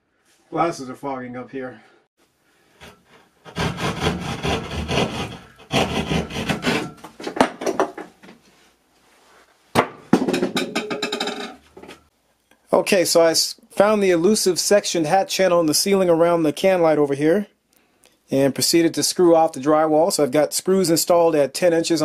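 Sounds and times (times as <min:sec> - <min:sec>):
drywall saw rasping: 0:02.7 - 0:07.1.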